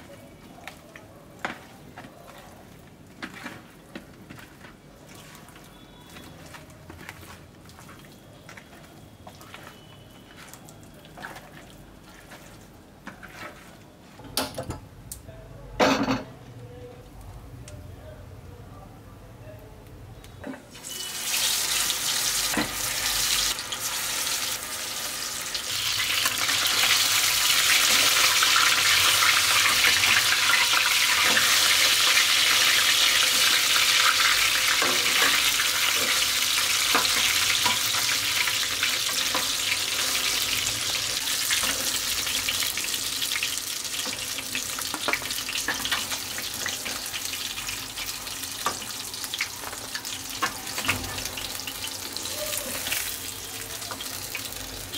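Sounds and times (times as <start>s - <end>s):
fish frying in hot oil: 20.7s - 54.9s.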